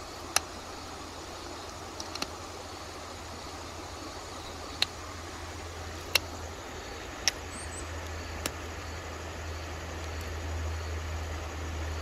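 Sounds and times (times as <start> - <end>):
background hiss: 0.0 - 12.0
stone knapping clicks: 7.2 - 7.4.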